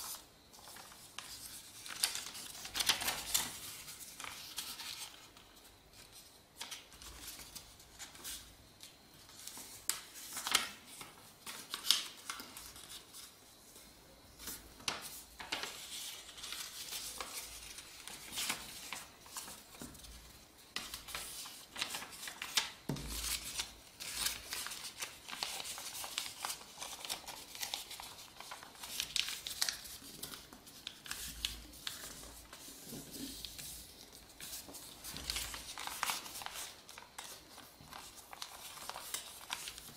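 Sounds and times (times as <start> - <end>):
paper rustling and sliding: 14.4 - 39.9.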